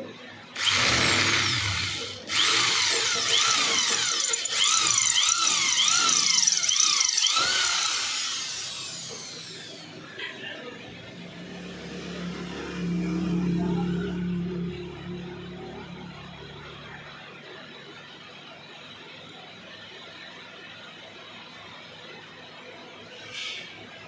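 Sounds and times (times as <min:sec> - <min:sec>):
drill bit squealing in metal: 0:00.6 - 0:09.4.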